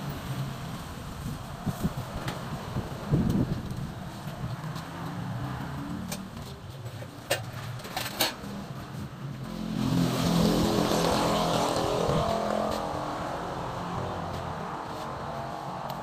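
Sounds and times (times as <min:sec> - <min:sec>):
vehicle engine revving: 0:08.4 - 0:16.0.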